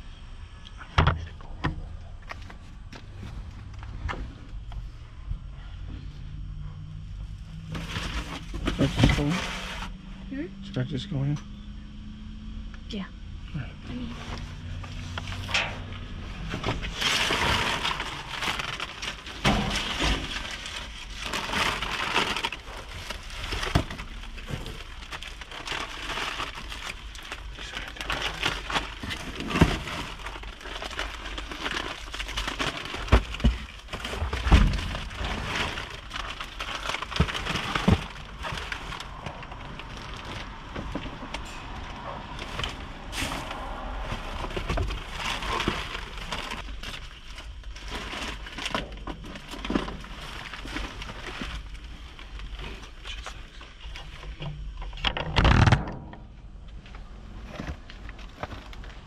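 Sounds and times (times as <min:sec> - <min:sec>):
packaging crinkling and rustling: 0:07.4 - 0:10.0, 0:14.3 - 0:56.1, 0:56.7 - 0:59.0.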